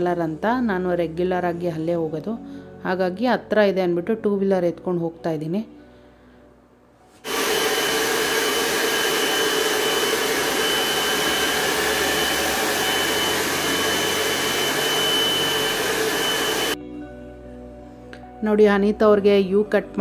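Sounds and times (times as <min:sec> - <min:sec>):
hair dryer blowing: 0:07.2 - 0:16.8.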